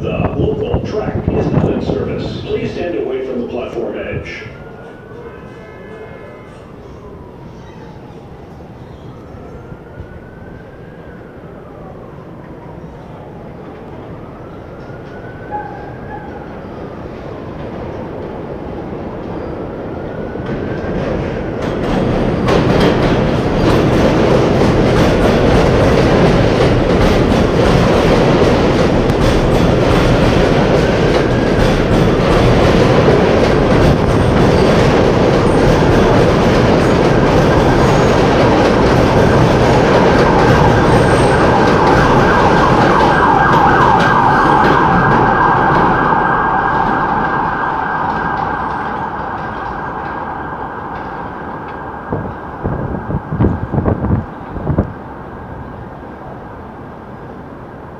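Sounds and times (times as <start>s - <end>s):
train wheels rumbling on rails: 0.0s - 57.9s.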